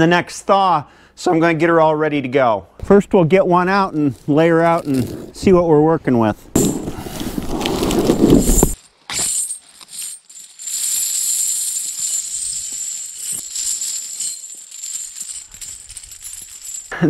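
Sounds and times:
chains dragged across ground: 7.4s - 17.0s
steel chains jingling and clinking: 8.4s - 17.0s.

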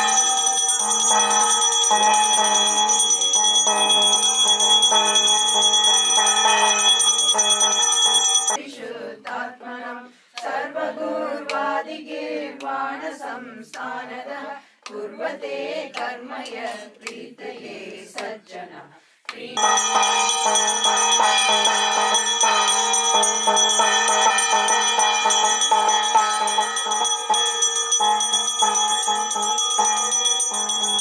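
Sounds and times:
hand bell ringing rapidly: 0.0s - 8.6s, 19.6s - 31.0s.

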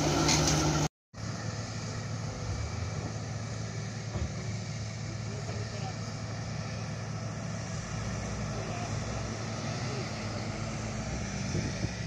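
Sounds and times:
heavy machinery diesel drone: 0.0s - 12.0s.

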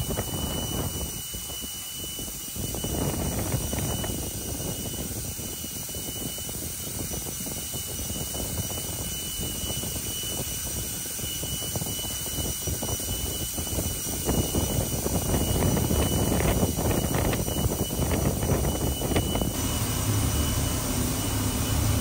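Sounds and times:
high steady whine: 0.0s - 22.0s
turbine roar: 0.0s - 22.0s
low rumbling on microphone: 13.6s - 22.0s.

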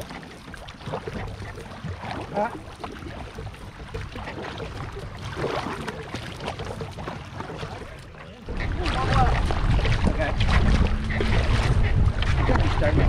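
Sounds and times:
canoe paddles splashing: 0.0s - 13.0s
wind rumble on microphone: 8.5s - 13.0s.

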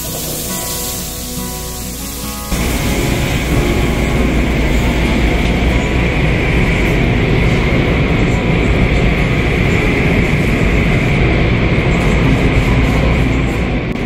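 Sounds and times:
car wash brushes and water spray: 0.0s - 14.0s.

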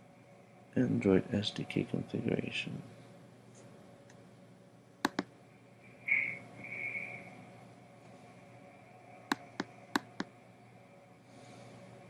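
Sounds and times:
computer mouse clicks: 5.0s - 5.3s, 9.3s - 10.3s.

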